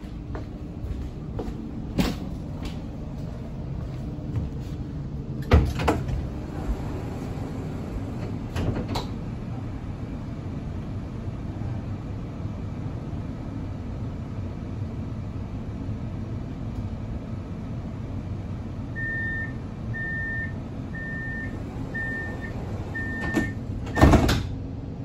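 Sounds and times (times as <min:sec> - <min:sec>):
tram humming: 0:00.0 - 0:25.0
doors sliding shut with thud: 0:05.4 - 0:09.5, 0:21.6 - 0:24.6.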